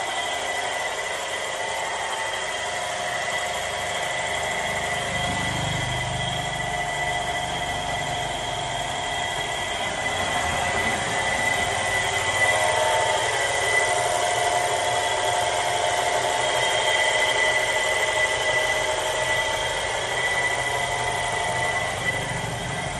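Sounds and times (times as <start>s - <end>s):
electric pump motor whine: 0.0s - 22.9s.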